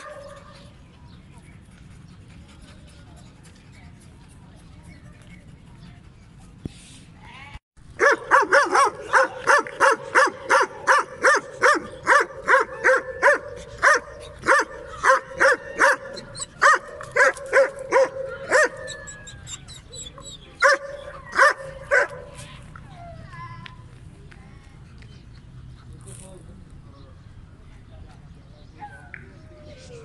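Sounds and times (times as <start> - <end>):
dog barking rapidly: 8.0 - 18.8.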